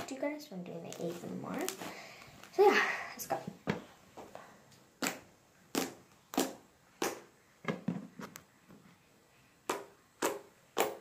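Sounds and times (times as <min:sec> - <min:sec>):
slime popping and squelching: 0:05.0 - 0:07.3.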